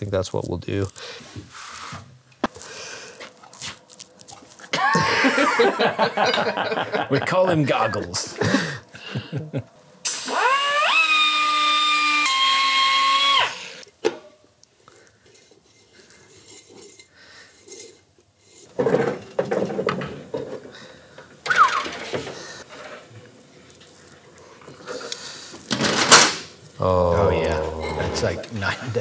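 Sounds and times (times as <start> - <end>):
knocks and handling sounds: 0.3 - 4.8, 13.9 - 26.7
air grinder whining: 10.0 - 13.8, 21.5 - 22.1.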